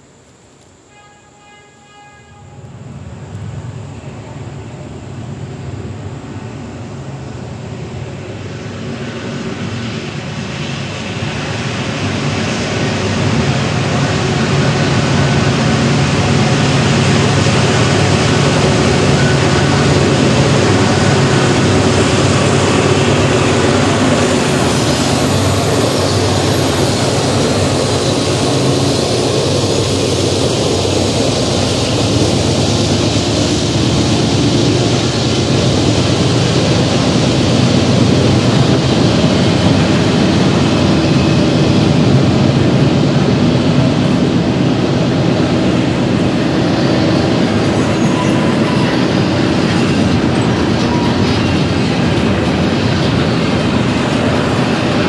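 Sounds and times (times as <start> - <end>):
diesel locomotive engines rumbling: 0.0 - 55.0
freight cars rolling past: 2.8 - 55.0.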